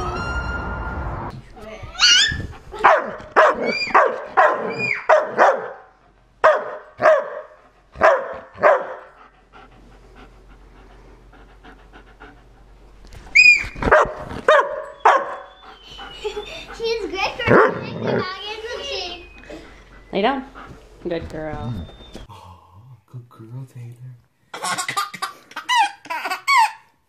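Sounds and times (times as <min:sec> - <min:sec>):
dog barking: 0:02.8 - 0:09.1, 0:13.8 - 0:15.6, 0:17.5 - 0:18.3.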